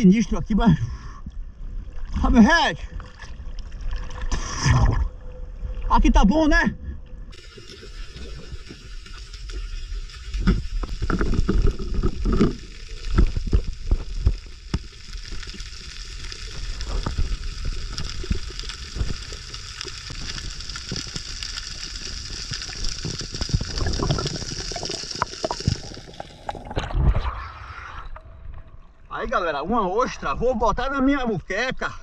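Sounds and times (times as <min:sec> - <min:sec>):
underwater crackling hiss: 0:07.3 - 0:28.1.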